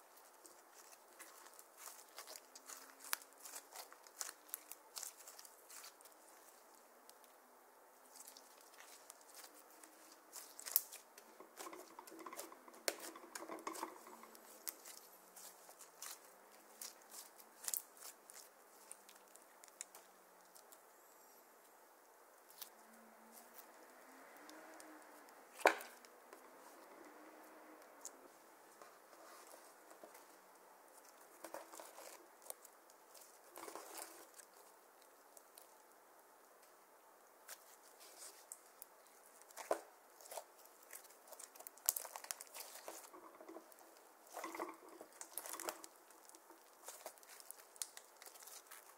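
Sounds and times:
slime sticky clicks and crackles: 0:00.5 - 0:07.3, 0:08.1 - 0:11.0, 0:37.5 - 0:43.2, 0:44.3 - 0:48.9.

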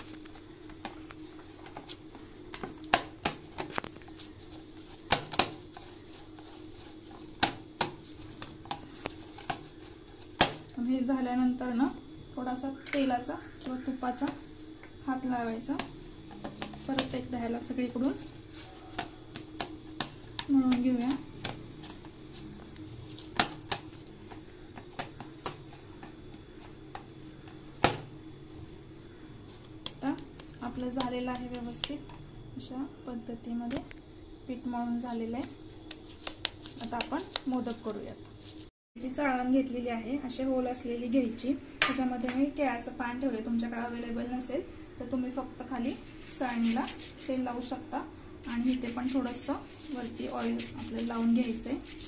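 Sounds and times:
hands kneading dough: 0:00.0 - 0:10.8, 0:29.4 - 0:32.1, 0:35.0 - 0:38.7, 0:45.6 - 0:52.0.

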